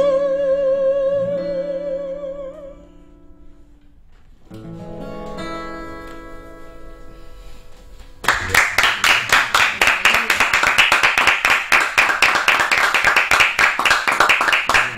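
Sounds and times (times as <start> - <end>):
people clapping: 8.2 - 14.9.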